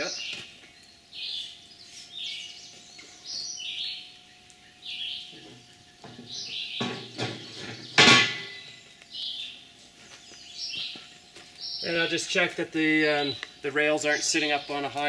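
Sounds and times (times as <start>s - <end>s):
bird chirping: 0.0s - 15.0s
steel rails knocking and clanking: 6.8s - 8.6s.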